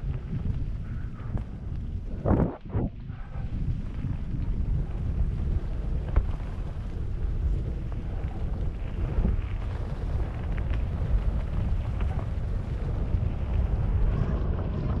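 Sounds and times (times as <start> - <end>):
wind buffeting microphone: 0.0 - 15.0
bike clicks and rattles: 3.0 - 15.0.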